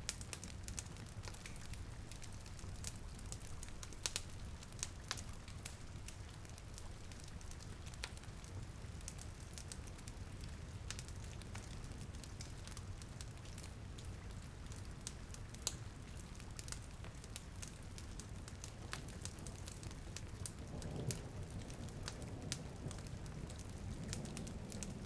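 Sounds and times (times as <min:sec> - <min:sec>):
rain hiss: 0:00.0 - 0:12.2, 0:17.2 - 0:25.0
fireplace crackling and popping: 0:00.0 - 0:25.0.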